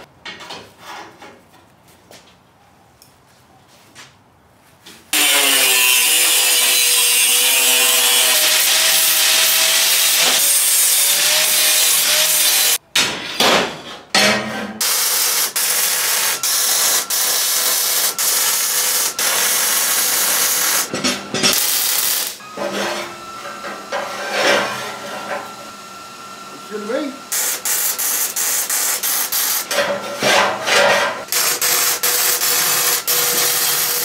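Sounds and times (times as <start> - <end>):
power tool grinding steel: 5.2 - 12.8, 14.8 - 34.0
welder crackling hiss: 5.2 - 12.8, 14.8 - 20.9, 21.6 - 22.4, 27.3 - 29.7, 31.3 - 34.0.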